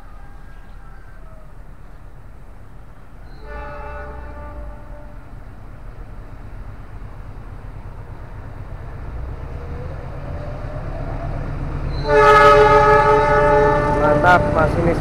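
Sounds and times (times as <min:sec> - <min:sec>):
locomotive rumble: 0:00.0 - 0:15.0
train horn: 0:03.2 - 0:05.5, 0:11.9 - 0:15.0.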